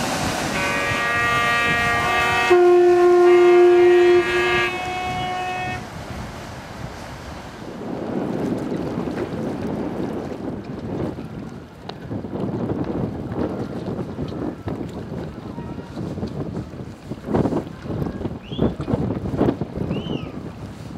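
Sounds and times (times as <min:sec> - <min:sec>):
deep ship horn: 0:00.0 - 0:06.0, 0:15.5 - 0:16.2
wash of water: 0:00.0 - 0:20.9
wind noise: 0:00.0 - 0:20.9
ship horns and whistles: 0:00.2 - 0:05.9.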